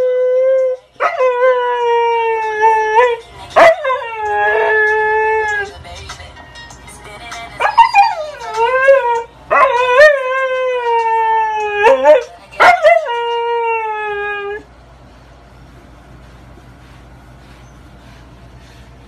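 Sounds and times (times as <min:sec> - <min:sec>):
dog howling: 0:00.0 - 0:05.7, 0:07.6 - 0:14.7
dog yips: 0:07.6 - 0:09.0.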